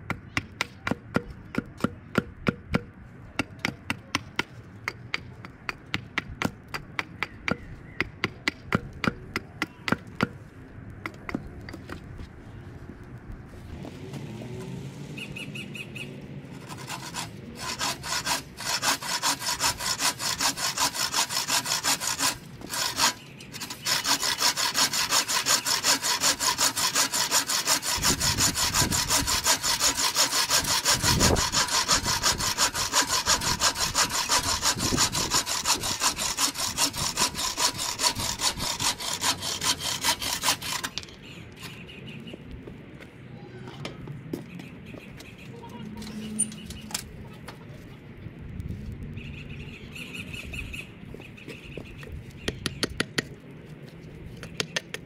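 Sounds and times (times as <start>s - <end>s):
hand saw cutting wood: 16.5s - 41.0s.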